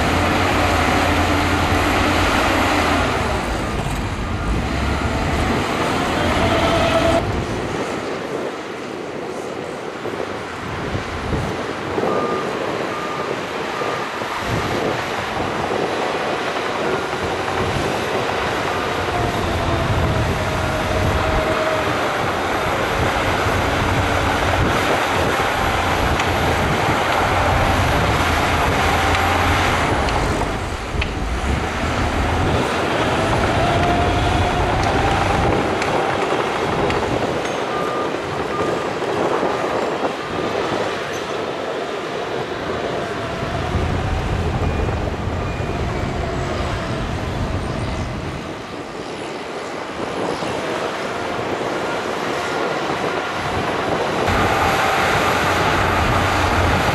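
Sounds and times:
track clatter and squeal: 0.0 - 8.5, 11.4 - 56.9
bulldozer diesel engine: 0.0 - 48.8, 49.8 - 56.9
dump trucks running: 0.0 - 56.9
reversing alarm beeping: 12.0 - 14.3, 32.9 - 39.2.

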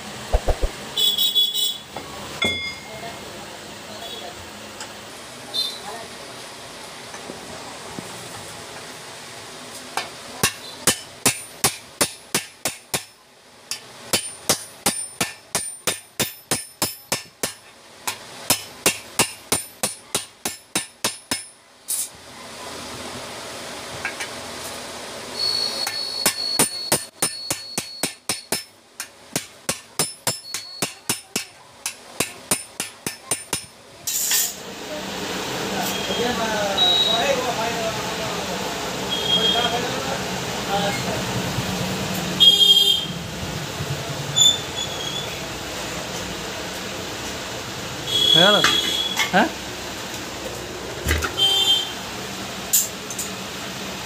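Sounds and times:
hammer striking metal rivets: 10.4 - 22.0, 25.8 - 34.4.

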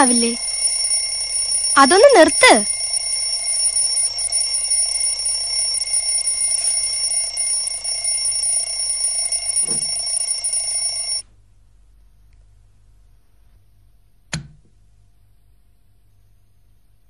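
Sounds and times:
alarm clock ringing: 0.0 - 11.2.

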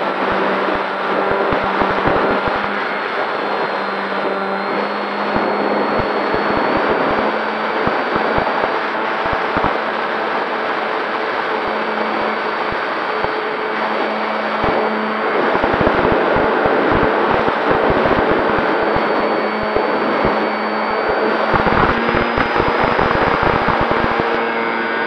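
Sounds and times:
electric motor and propeller: 0.0 - 25.0
thin high whine: 0.0 - 25.0
wind rushing over microphone: 12.6 - 24.4.

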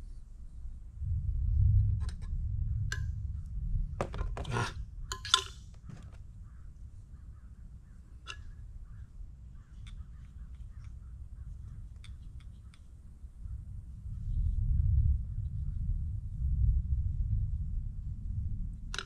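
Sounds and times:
low rumble: 0.6 - 10.1, 13.4 - 19.0
plastic pipe fittings clicking: 8.2 - 8.5, 11.9 - 12.9.

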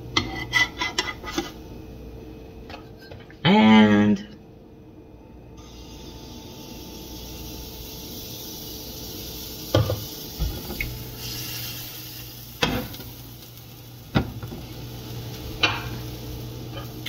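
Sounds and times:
batter sizzling in frying pan: 5.6 - 17.0.

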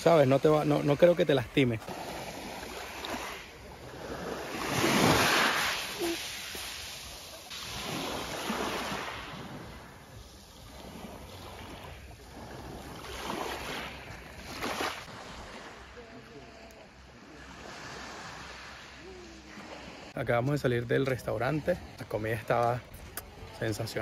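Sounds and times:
waves washing over pebbles: 0.0 - 15.9.

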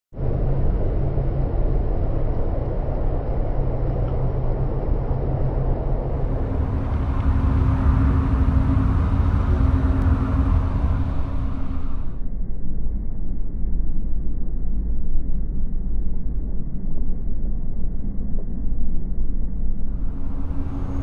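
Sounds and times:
vent pipes droning rumble: 0.2 - 21.0
higher hum: 5.8 - 12.2, 19.9 - 21.0.

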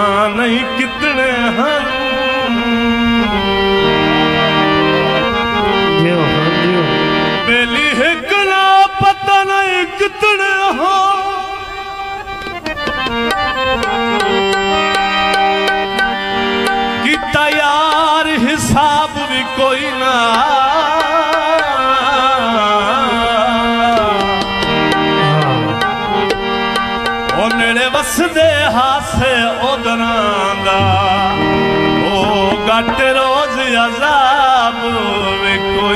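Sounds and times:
harmonium chords: 0.0 - 35.9
man singing with vibrato: 0.0 - 35.9
tabla strokes: 12.4 - 18.5, 23.9 - 28.9, 32.2 - 33.3.

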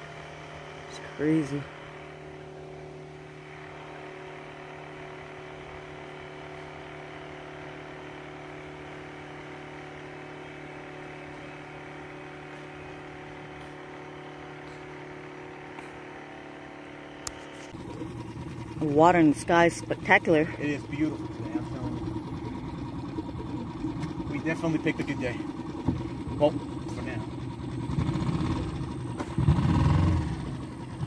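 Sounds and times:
motor humming: 8.0 - 31.0.

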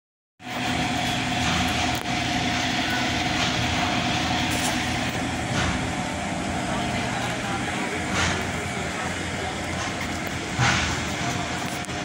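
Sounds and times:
engine running with whine: 0.4 - 12.0
street noise: 0.4 - 12.0
crowd noise: 0.5 - 12.0.

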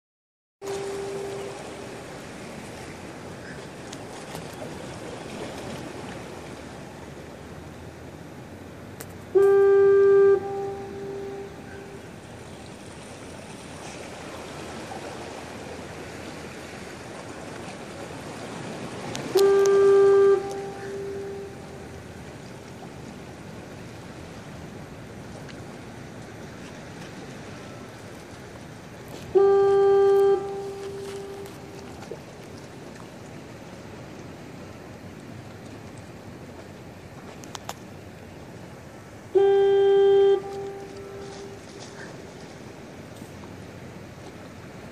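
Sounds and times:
foghorn blasts: 0.6 - 2.6, 9.3 - 12.7, 18.6 - 22.3, 29.2 - 32.1, 39.3 - 42.1.

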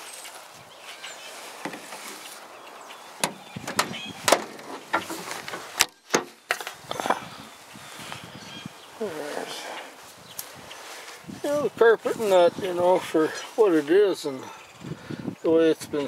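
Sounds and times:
clunks on metal car body: 3.2 - 6.3.

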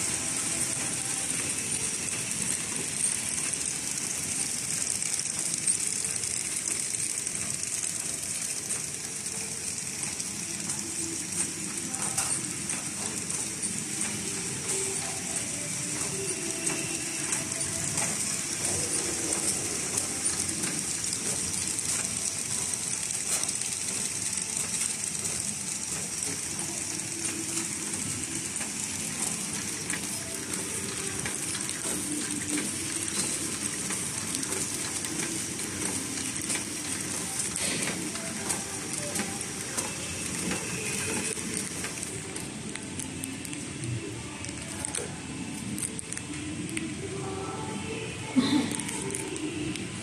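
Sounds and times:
wrapping machine clatter and hiss: 0.0 - 50.0.

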